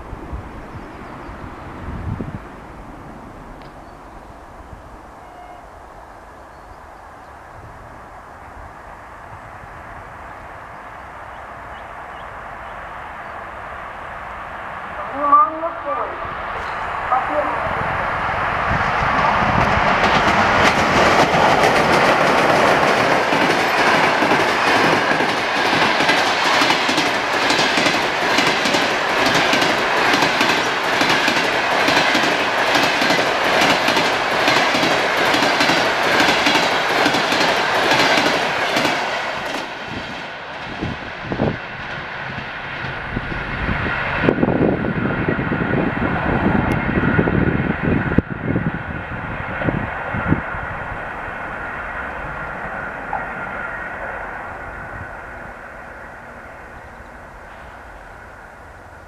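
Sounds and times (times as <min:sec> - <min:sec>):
train wheels clickety-clack: 0:18.8 - 0:41.0.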